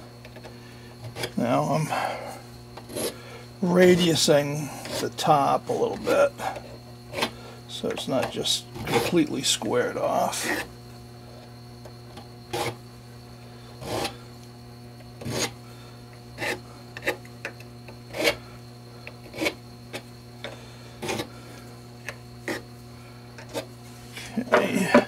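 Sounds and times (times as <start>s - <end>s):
steady low hum: 0.0s - 25.0s
hand file scraping metal: 13.8s - 14.2s, 15.2s - 15.6s, 18.1s - 18.4s, 19.2s - 19.6s.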